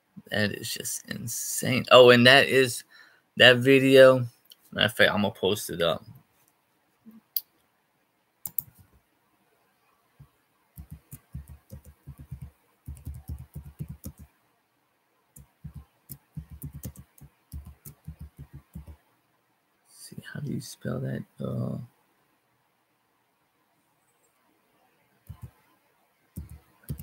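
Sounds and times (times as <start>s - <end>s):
separate clicks: 8.4s - 8.8s
typing on a keyboard: 8.5s - 8.8s, 10.8s - 14.3s, 15.4s - 19.0s, 25.3s - 25.5s, 26.4s - 27.0s.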